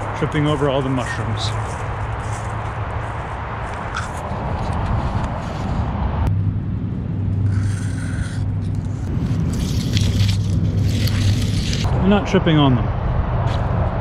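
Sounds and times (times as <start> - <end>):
grass rustling against microphone: 0.0 - 6.1, 7.5 - 12.0
steady low rumble: 0.0 - 14.0.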